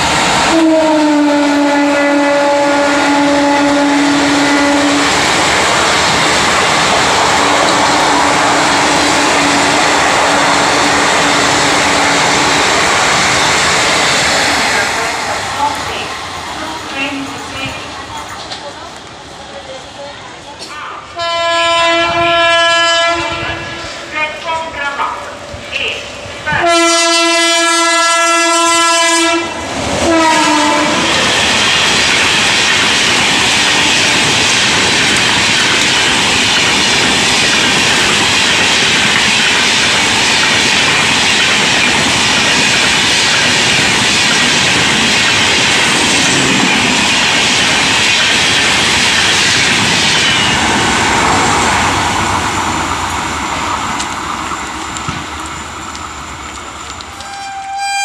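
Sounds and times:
train coaches passing: 0.0s - 58.0s
train horn blasts: 0.5s - 5.1s, 7.8s - 12.6s, 21.2s - 23.6s, 26.5s - 31.1s, 57.2s - 58.0s.

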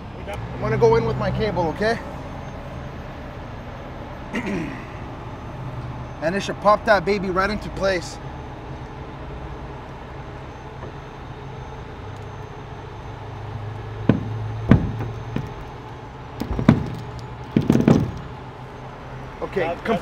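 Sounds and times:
tow truck engine and winch humming: 0.0s - 20.0s
rigging hardware knocking: 14.0s - 15.7s.

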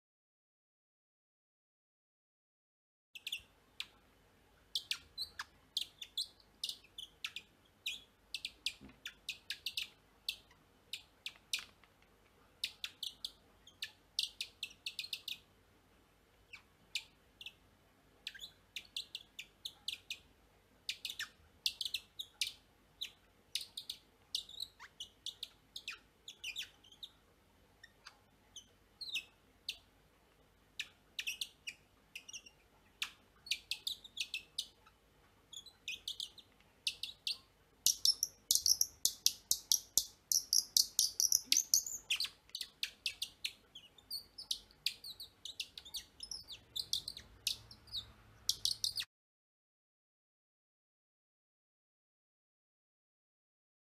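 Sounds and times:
wooden bird call squeaky chirps: 35.5s - 49.1s.

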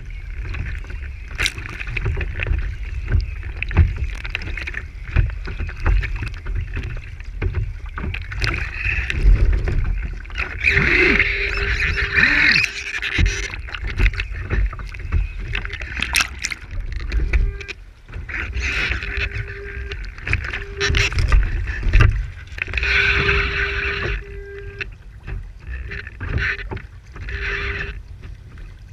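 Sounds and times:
wind buffeting microphone: 0.0s - 12.6s
water splashing along hull: 0.0s - 28.9s
thin whine: 8.4s - 24.9s.

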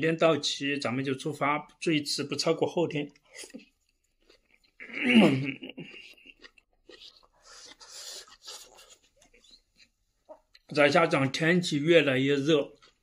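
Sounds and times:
person chewing: 3.0s - 10.8s, 12.6s - 13.0s
person slurping: 4.4s - 9.6s.

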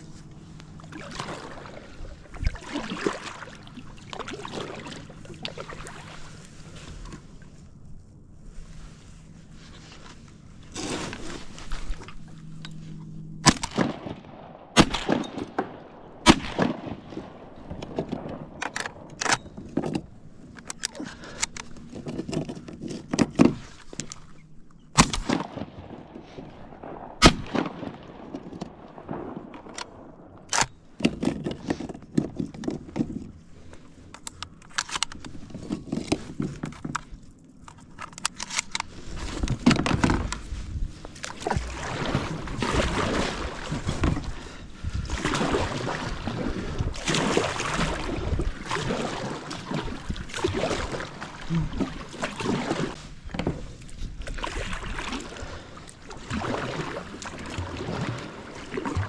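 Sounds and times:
shotgun shots: 13.4s - 17.1s, 26.8s - 28.2s
gun handling knocks and clatter: 17.6s - 24.3s, 29.5s - 41.6s.

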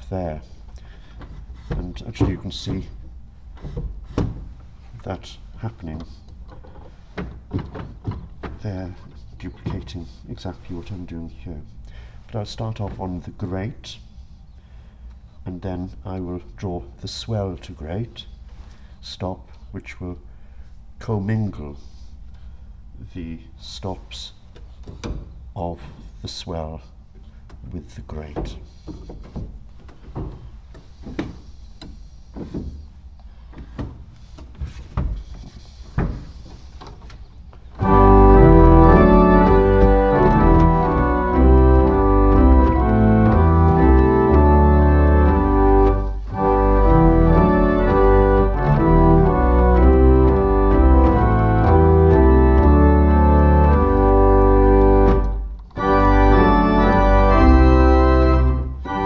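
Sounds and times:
clicks and knocks at organ console: 0.6s - 4.6s, 5.6s - 10.1s, 24.5s - 26.1s, 27.2s - 59.0s
pipe organ playing hymn chords: 37.7s - 59.0s.

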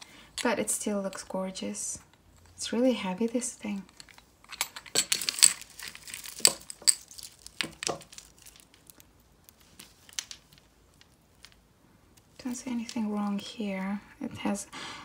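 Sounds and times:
beaded jewellery clicking and rattling: 2.3s - 13.9s.

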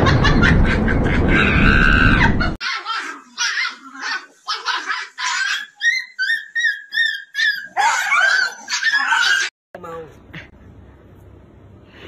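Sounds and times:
dogs barking: 0.0s - 9.5s
high-pitched dog yelps: 1.3s - 9.5s.

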